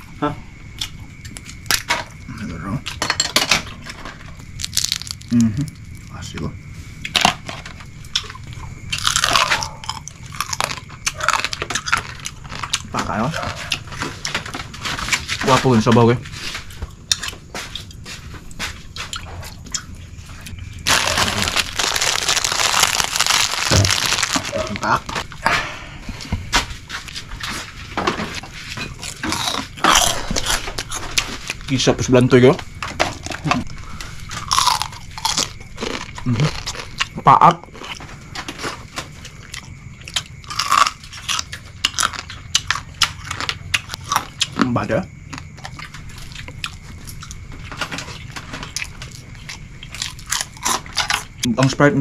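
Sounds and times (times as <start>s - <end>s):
crunching crab shell: 3.8s - 5.8s, 7.1s - 15.6s, 20.8s - 25.3s, 32.8s - 51.5s
crab shells cracking: 4.6s - 5.4s, 20.9s - 25.2s.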